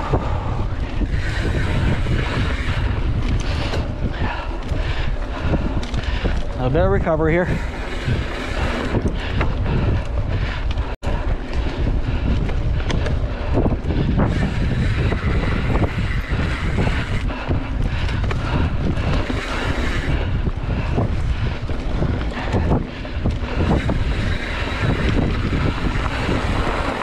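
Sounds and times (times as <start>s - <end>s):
bike rattles and knocks: 0.0s - 27.0s
wind buffeting microphone: 0.0s - 27.0s.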